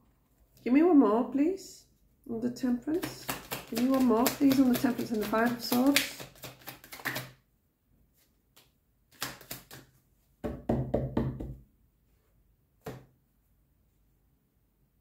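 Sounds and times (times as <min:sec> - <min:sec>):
cards being shuffled: 0:02.9 - 0:07.4, 0:08.2 - 0:09.9.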